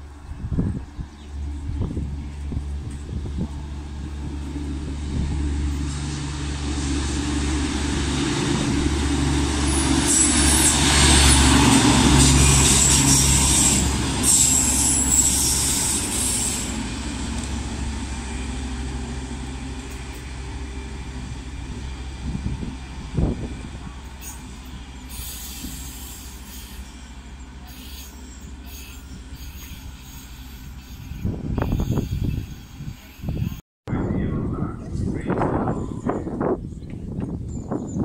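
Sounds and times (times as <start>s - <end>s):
diesel ballast machine passing: 1.3s - 32.0s
high-pitched squeal: 9.4s - 17.2s, 24.2s - 33.6s.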